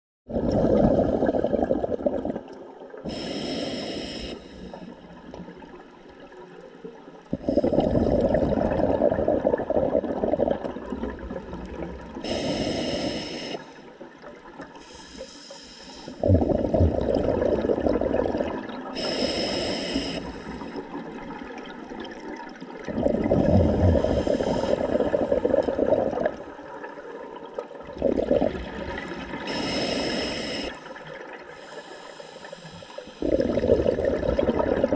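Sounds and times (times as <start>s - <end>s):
exhaled bubbles rumbling: 0.3s - 3.2s, 4.6s - 13.2s, 16.1s - 19.1s, 20.1s - 31.5s, 33.1s - 34.9s
regulator inhale hiss: 3.1s - 5.0s, 12.2s - 13.9s, 14.8s - 16.2s, 19.0s - 20.9s, 23.6s - 25.5s, 28.9s - 33.5s.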